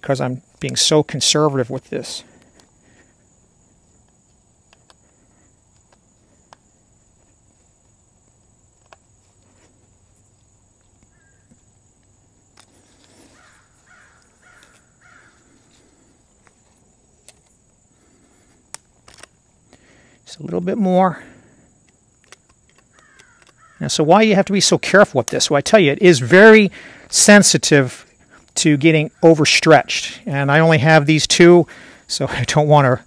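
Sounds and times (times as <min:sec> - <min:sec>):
pliers metal clicks: 0:22.2 - 0:23.6.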